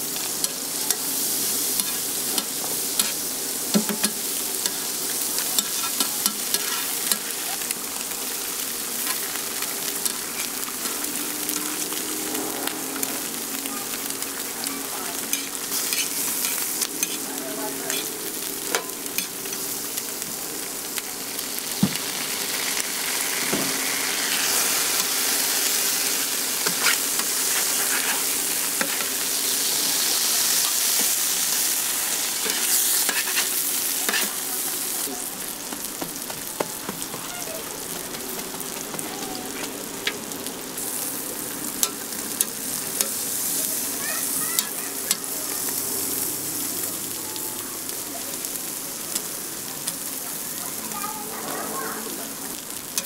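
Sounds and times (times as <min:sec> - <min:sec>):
food sizzling on griddle: 0:00.0 - 0:53.0
metal spatula scraping griddle: 0:05.6 - 0:07.3, 0:15.3 - 0:17.2, 0:26.6 - 0:29.2, 0:32.4 - 0:34.4.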